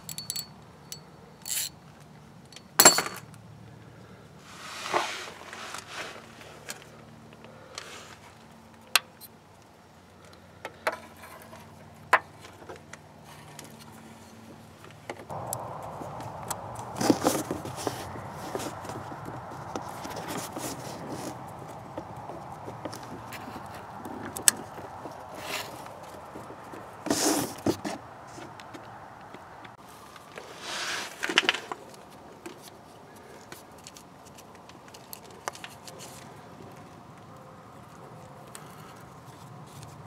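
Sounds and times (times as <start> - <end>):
wiring scraping rustles: 4.4 - 7.0, 15.4 - 28.6.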